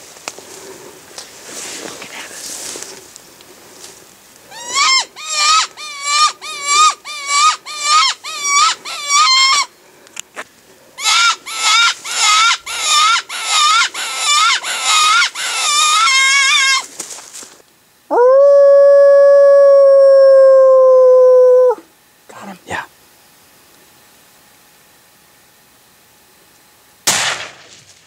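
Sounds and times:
squealing distress cries: 4.5s - 9.7s, 11.0s - 16.9s.

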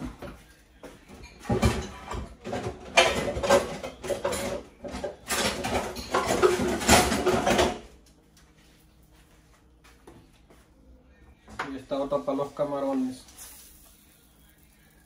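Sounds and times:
pots and pans clattering: 1.1s - 7.9s.

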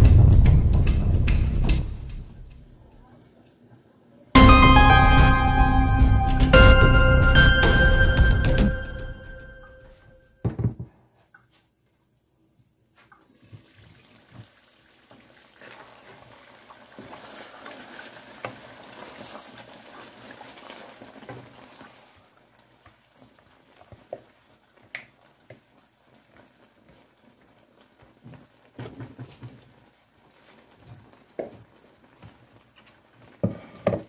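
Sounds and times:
stew simmering with wet hiss: 12.9s - 34.0s
wooden spoon stirring pot: 17.0s - 34.0s.

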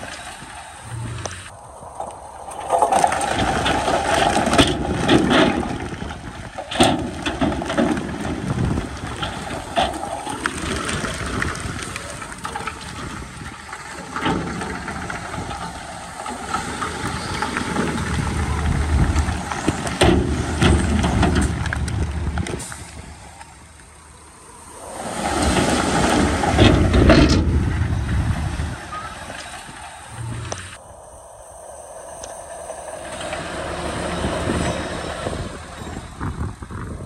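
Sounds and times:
heavy diesel engine rumbling: 0.0s - 37.0s
metal clanks and knocks: 2.7s - 11.5s, 12.4s - 22.8s, 25.4s - 28.3s.

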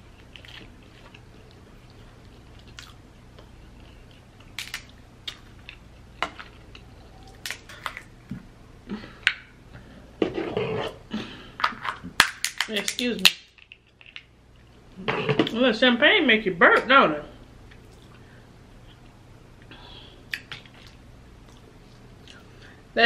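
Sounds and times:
chewing and wet mouth sounds: 0.1s - 8.1s, 17.7s - 18.2s, 20.3s - 22.5s
crab shell cracking: 12.2s - 14.3s.

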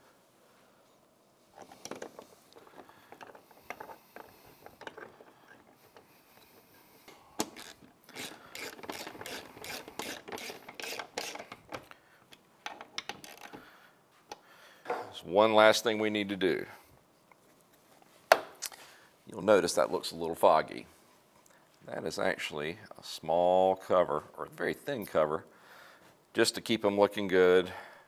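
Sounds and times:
hand ratchet clicking: 7.4s - 12.0s.

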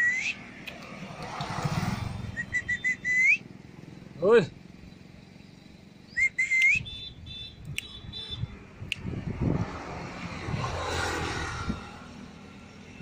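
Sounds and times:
motor vehicle passing: 0.0s - 13.0s
short rising whistle: 2.0s - 3.4s, 6.1s - 6.8s.

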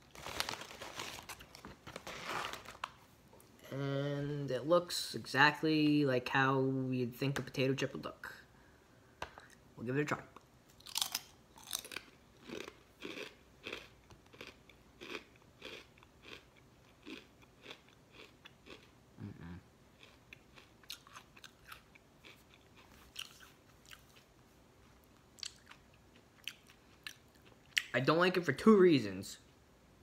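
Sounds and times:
person chewing crisp chips: 10.7s - 27.9s.

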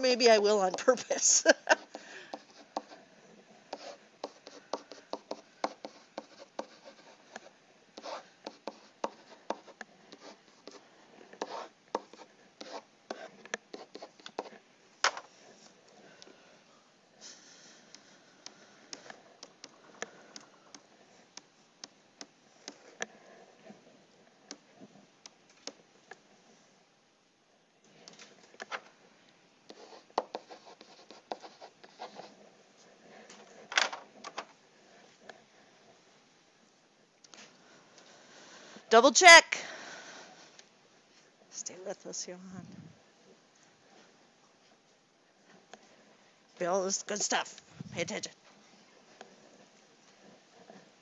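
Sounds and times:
stylus tapping on tablet: 3.8s - 6.7s.

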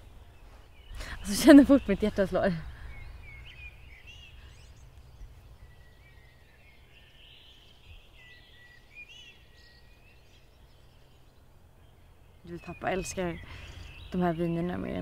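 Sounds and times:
low background rumble: 0.0s - 8.7s
faint birdsong: 0.0s - 15.0s.

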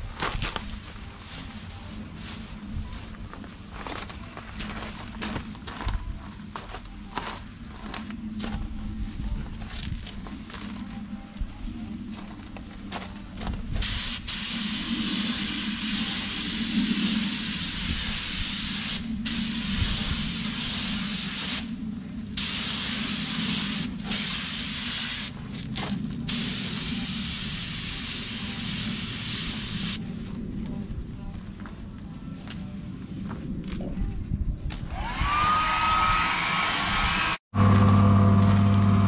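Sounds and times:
steady low hum: 0.0s - 34.7s
paint spray gun hissing: 13.8s - 21.7s, 22.4s - 25.3s, 26.4s - 30.0s.

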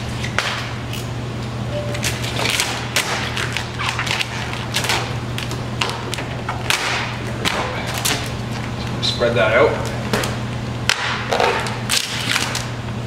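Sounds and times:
steady low hum: 0.0s - 13.0s
vinyl film crackling and snapping: 1.9s - 8.7s, 9.8s - 12.8s.

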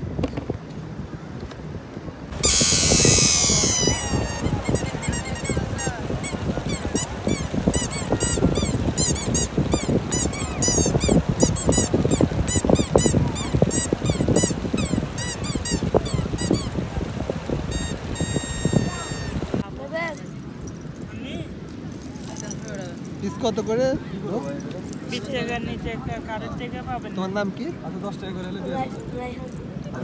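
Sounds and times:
wind: 0.0s - 30.0s
surf: 2.3s - 20.0s
toy squeaking: 2.4s - 16.8s, 17.7s - 19.6s.

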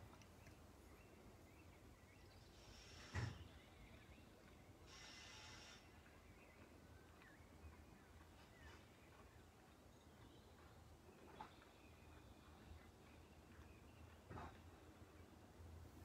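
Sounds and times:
brief hiss: 2.5s - 3.6s, 4.8s - 6.0s.

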